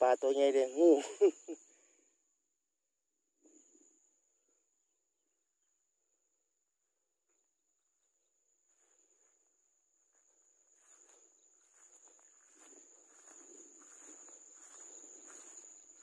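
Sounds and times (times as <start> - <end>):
high-pitched insect trill: 0.0 - 1.8, 8.3 - 16.0
footsteps: 10.1 - 16.0
rustling through plants and grass: 10.8 - 16.0.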